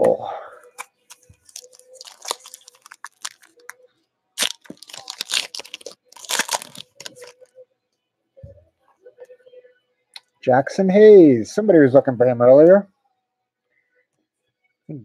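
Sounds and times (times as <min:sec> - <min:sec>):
foil wrapper crinkling and tearing: 0:01.1 - 0:03.8, 0:04.4 - 0:07.4.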